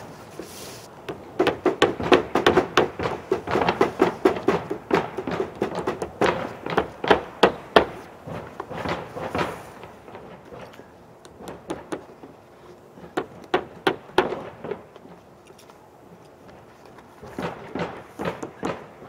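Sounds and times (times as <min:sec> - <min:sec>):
hammers striking nails: 0:01.1 - 0:12.4, 0:13.0 - 0:15.1, 0:17.2 - 0:19.0.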